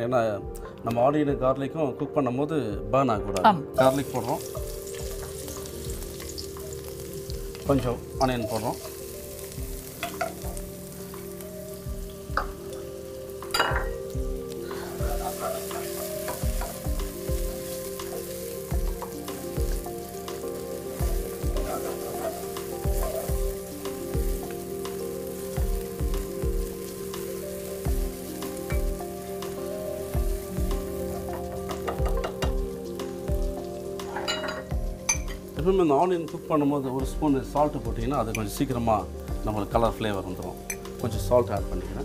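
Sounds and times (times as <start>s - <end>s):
onion sizzling in frying pan: 3.8s - 42.0s
wooden spatula stirring in pan: 14.6s - 32.7s.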